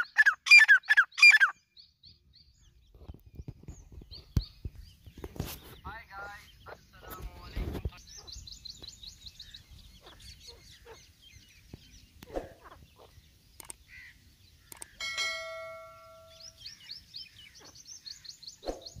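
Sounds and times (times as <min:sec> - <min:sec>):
high-pitched bird chirps: 0:00.0 - 0:02.1
ringing chime: 0:15.0 - 0:16.6.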